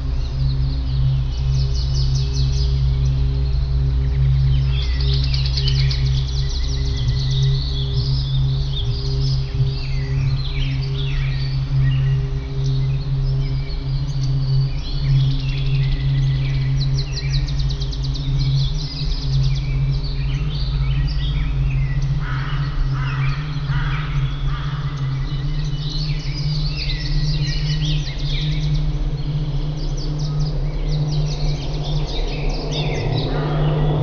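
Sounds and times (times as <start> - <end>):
songbirds chirping: 0.0 - 34.0
steady low drone: 0.0 - 34.0.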